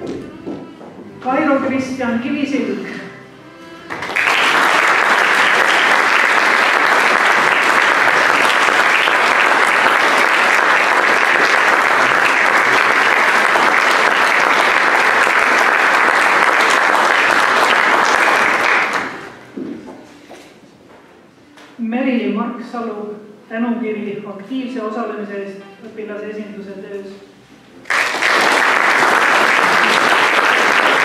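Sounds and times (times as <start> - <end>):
audience applause: 3.9 - 19.4, 27.9 - 31.0.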